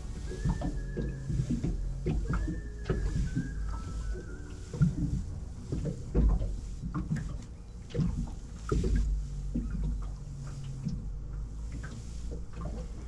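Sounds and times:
small waves lapping against hull: 0:00.0 - 0:13.0
wind rumble on microphone: 0:00.0 - 0:13.0.

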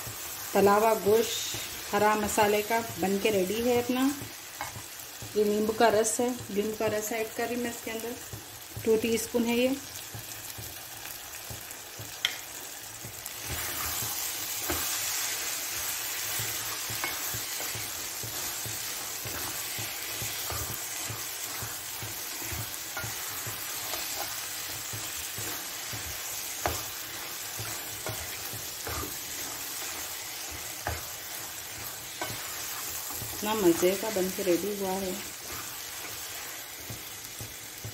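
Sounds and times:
meat sizzling in oil: 0:00.0 - 0:37.9
spatula scraping a pan: 0:13.2 - 0:37.9.

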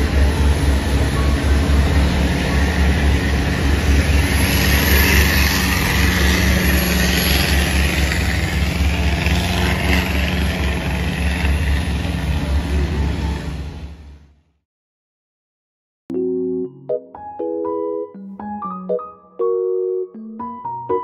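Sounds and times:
boat engine throbbing: 0:00.0 - 0:14.2.

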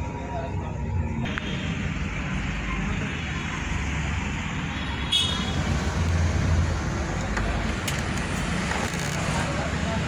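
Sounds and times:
low traffic rumble: 0:00.0 - 0:10.0.

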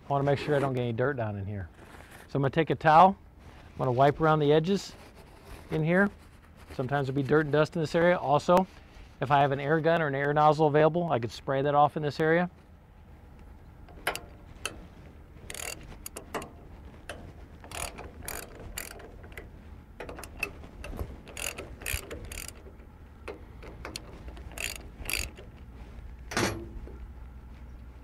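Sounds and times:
ratchet wrench clicking: 0:15.5 - 0:16.5, 0:17.1 - 0:25.6
metal clank: 0:26.3 - 0:27.0.

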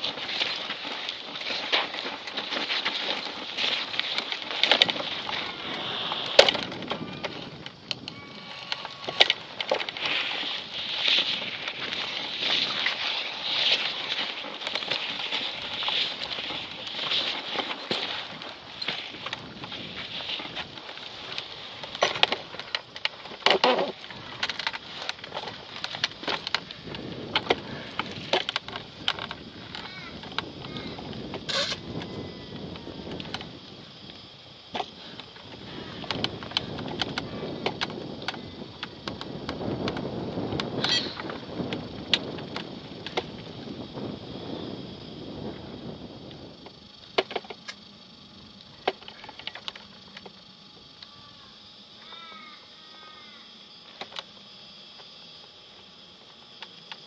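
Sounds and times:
crackles and clicks: 0:00.0 - 0:52.1, 0:52.9 - 0:57.0
wind rushing over microphone: 0:04.8 - 0:14.2, 0:24.0 - 0:47.0.

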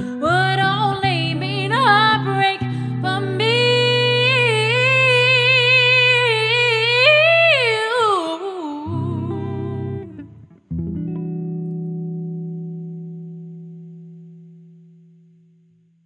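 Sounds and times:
electric guitar chords: 0:00.0 - 0:07.7, 0:08.9 - 0:16.0
woman singing long wordless note: 0:00.0 - 0:10.3.

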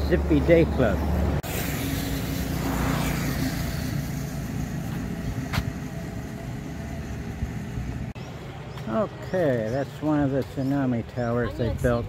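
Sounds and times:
vehicle passing: 0:00.0 - 0:08.2
engine hum: 0:00.0 - 0:10.5.

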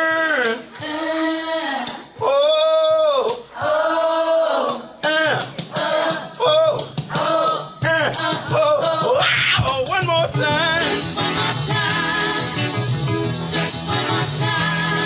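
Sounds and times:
man and women singing: 0:00.1 - 0:12.8, 0:13.5 - 0:15.0.

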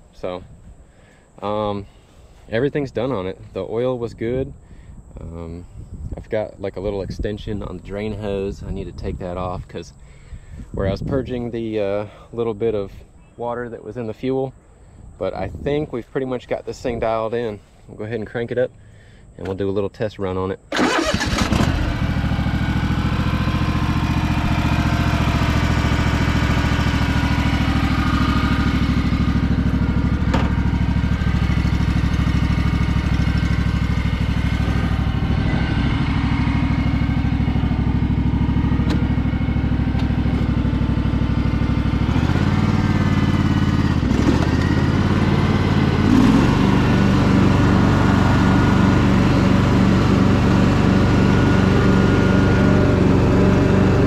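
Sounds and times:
lawn tractor engine running: 0:20.7 - 0:54.0.

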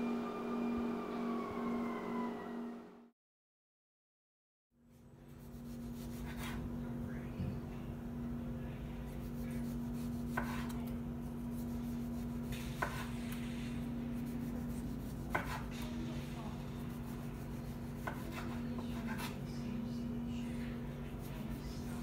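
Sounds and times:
steady low hum: 0:04.9 - 0:22.0
knife slicing tomato: 0:05.4 - 0:06.7, 0:09.2 - 0:13.3, 0:14.1 - 0:15.8, 0:16.8 - 0:19.4.

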